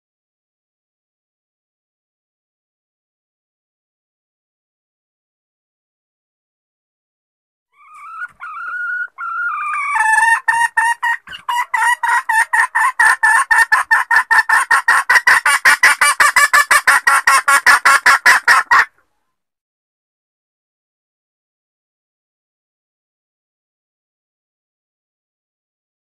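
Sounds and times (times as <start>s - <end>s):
hen call with clucks: 7.7s - 19.1s.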